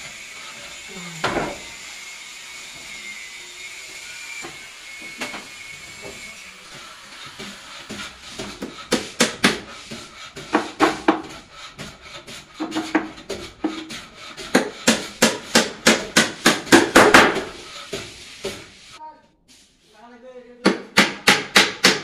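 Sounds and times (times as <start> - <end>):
hammer driving nails into plywood: 20.7 - 22.0.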